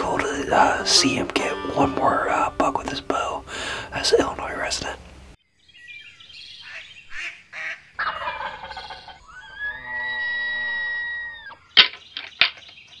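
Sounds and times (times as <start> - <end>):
turkey-like gobble: 7.2 - 11.6.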